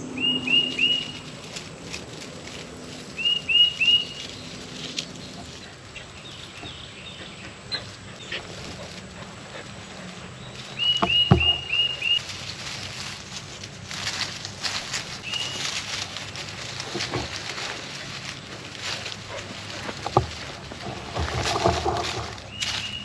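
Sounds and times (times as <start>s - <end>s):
dull thump: 11.0s - 11.9s.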